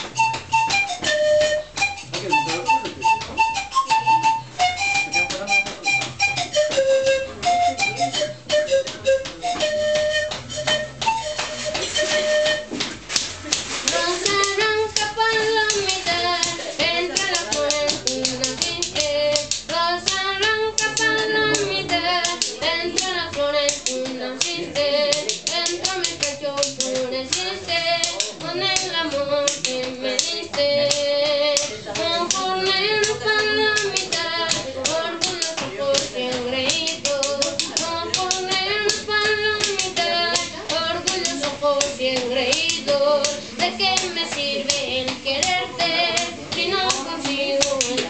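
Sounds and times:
rhythmic hand-clapping: 0.0s - 48.0s
boy singing: 13.8s - 48.0s.

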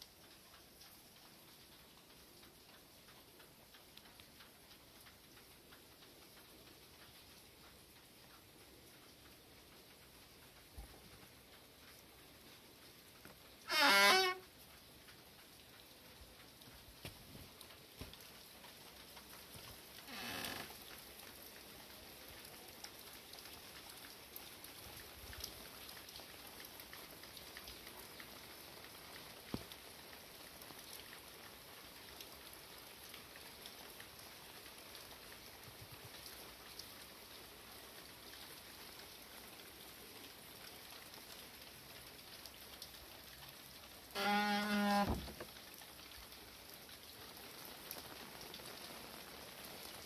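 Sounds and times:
steady rain falling: 0.0s - 50.0s
loud horn-like tone: 44.2s - 45.2s.

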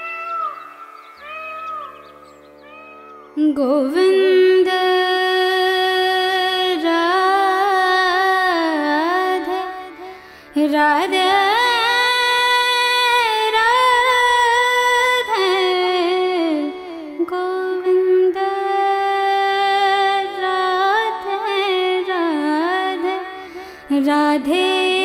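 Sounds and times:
sung melody with long notes: 0.0s - 12.8s.

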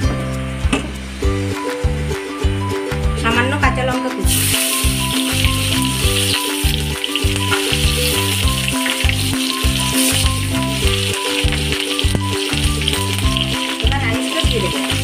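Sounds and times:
chilies sizzling in hot oil: 4.3s - 15.0s.

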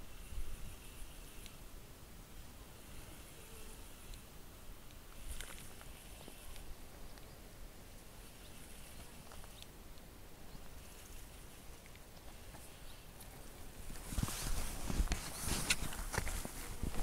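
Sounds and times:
wind rumble on microphone: 13.8s - 17.0s.

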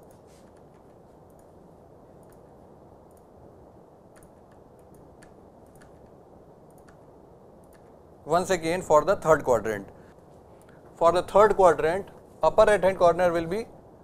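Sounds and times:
low room hum: 0.0s - 14.0s
mouse and keyboard clicks: 4.2s - 6.1s.

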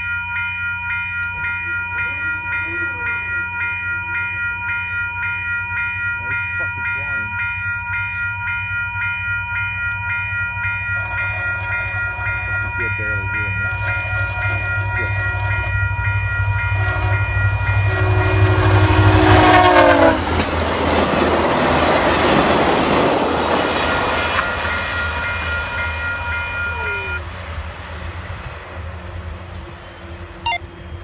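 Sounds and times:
rush of passing train coaches: 0.0s - 31.0s
train horn: 10.9s - 20.4s.

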